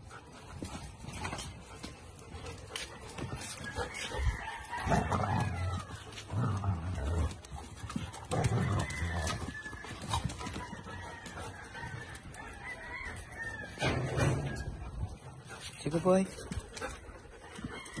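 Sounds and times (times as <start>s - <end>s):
rooster crowing and clucking: 3.4s - 15.2s, 17.4s - 18.0s.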